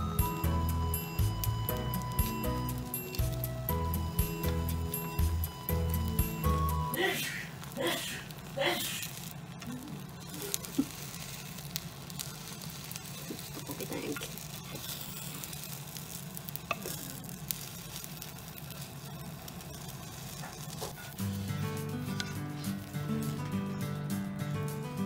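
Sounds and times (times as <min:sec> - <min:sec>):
egg sizzling in a pan: 0:00.0 - 0:24.1.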